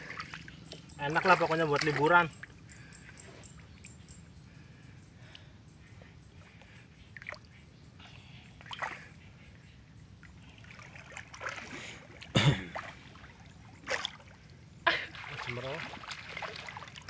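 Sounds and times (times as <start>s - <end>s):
water splashing: 0.0s - 2.6s, 8.6s - 9.2s, 10.2s - 17.0s.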